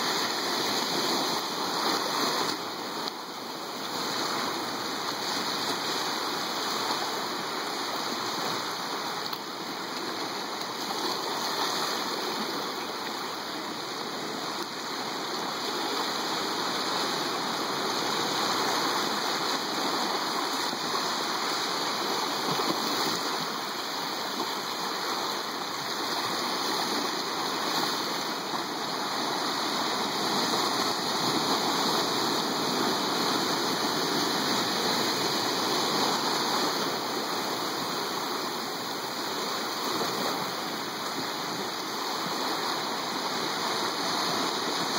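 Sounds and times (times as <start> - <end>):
ocean surf washing ashore: 0.0 - 44.9.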